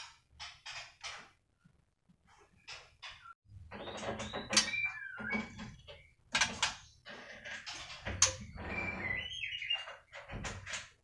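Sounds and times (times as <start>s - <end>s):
birds calling harsh and whistled: 2.6s - 10.8s.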